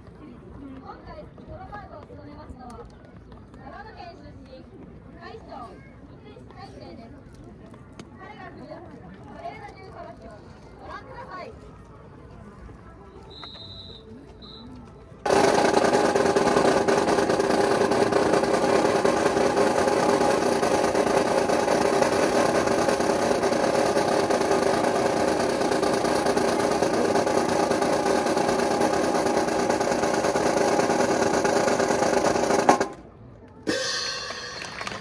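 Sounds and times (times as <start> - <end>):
snare drum roll: 15.3 - 33.0, 33.7 - 35.0.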